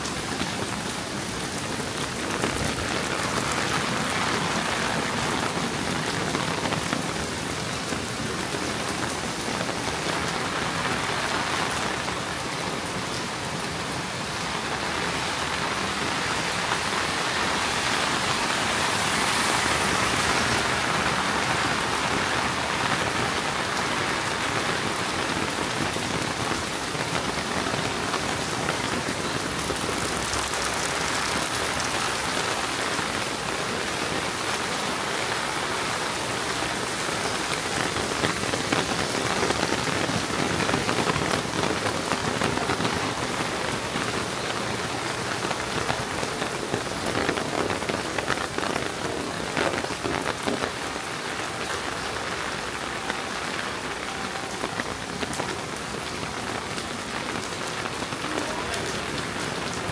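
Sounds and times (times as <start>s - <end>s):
steady rain on street: 0.0s - 59.9s.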